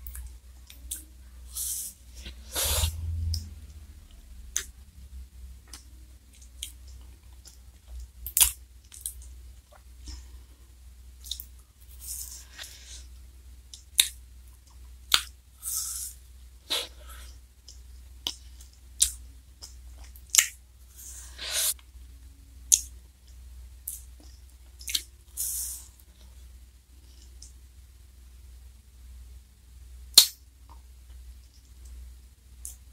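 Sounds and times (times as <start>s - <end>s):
hissing slurps: 1.5s - 3.0s.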